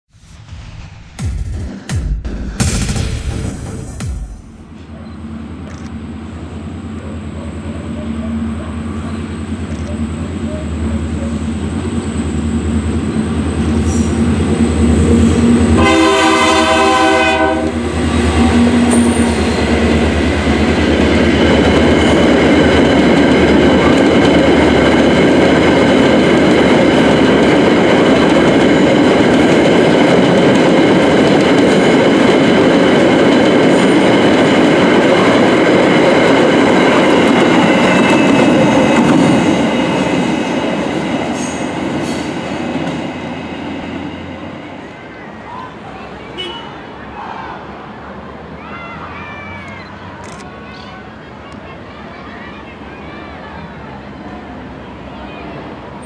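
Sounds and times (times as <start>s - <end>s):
diesel locomotive engines droning: 4.6s - 56.0s
train horn blast: 15.1s - 19.5s.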